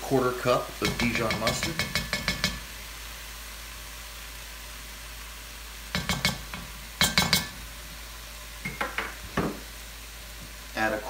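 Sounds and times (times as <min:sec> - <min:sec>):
vegetables sizzling in a pot: 0:00.0 - 0:11.0
utensils tapping: 0:00.8 - 0:02.7, 0:05.9 - 0:07.6
utensils clinking on pot: 0:06.0 - 0:07.6.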